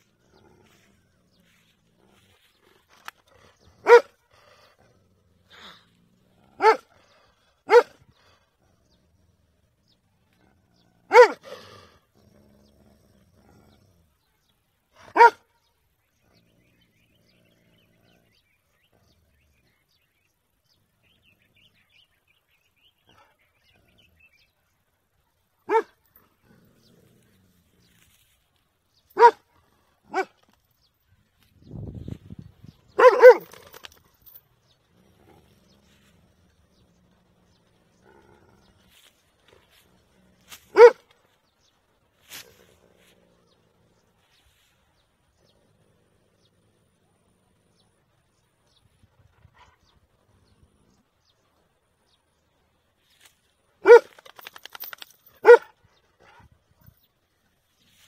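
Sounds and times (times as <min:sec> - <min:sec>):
dog growling low: 0:00.0 - 0:14.6, 0:16.2 - 0:20.0, 0:26.1 - 0:28.0, 0:33.6 - 0:40.5, 0:41.8 - 0:52.4
large dog barking: 0:02.9 - 0:04.6, 0:06.4 - 0:08.3, 0:11.0 - 0:11.8, 0:15.0 - 0:15.5, 0:25.6 - 0:26.1, 0:29.1 - 0:30.4, 0:32.9 - 0:34.0, 0:40.4 - 0:41.1, 0:53.8 - 0:54.4, 0:55.4 - 0:56.6.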